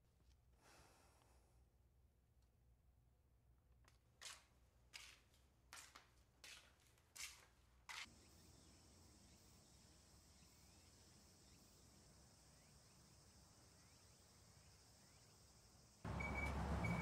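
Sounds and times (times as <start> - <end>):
footsteps on concrete: 3.8 - 8.1
high-pitched outdoor hiss: 8.1 - 17.0.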